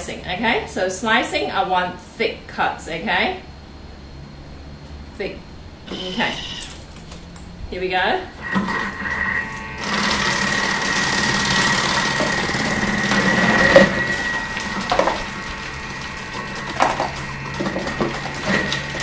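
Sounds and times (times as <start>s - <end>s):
food processor motor whine: 5.8s - 6.8s, 8.4s - 19.0s.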